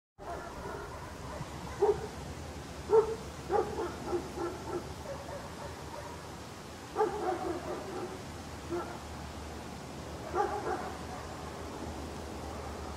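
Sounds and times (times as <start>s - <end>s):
dog barking and yipping: 0.2s - 2.2s, 2.9s - 6.3s, 6.9s - 9.0s, 10.2s - 11.4s
steady background hiss: 0.2s - 12.9s.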